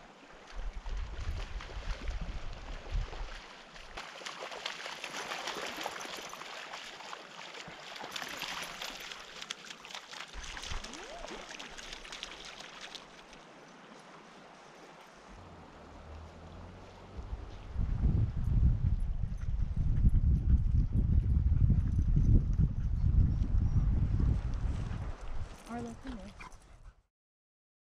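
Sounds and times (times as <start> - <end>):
creek water rippling over sand: 0.0 - 18.4
splashing footsteps in water: 0.4 - 17.7
wind buffeting microphone: 15.3 - 26.9.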